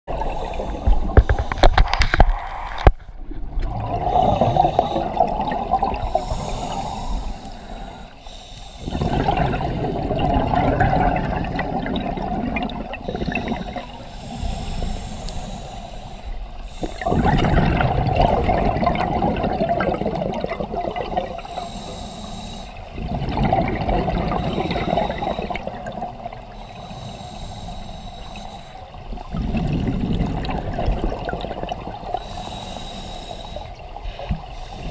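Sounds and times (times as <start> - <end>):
diver inhaling: 0.1 - 2.1, 4.0 - 5.4, 6.0 - 9.6, 13.0 - 17.5, 21.4 - 23.0, 24.4 - 29.0, 32.0 - 34.9
underwater bubbles gurgling: 0.1 - 34.9.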